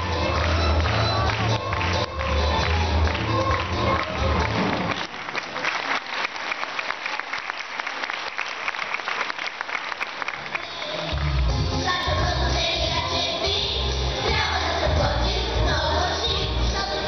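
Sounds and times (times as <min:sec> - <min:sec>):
dance music: 0:00.0 - 0:05.0, 0:10.5 - 0:17.0
audience applauding: 0:00.0 - 0:11.6.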